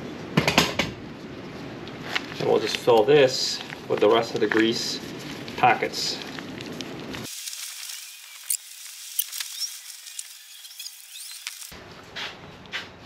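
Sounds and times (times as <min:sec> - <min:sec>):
grease squelching: 0:02.2 - 0:10.4
plastic packet crinkling: 0:02.2 - 0:11.7.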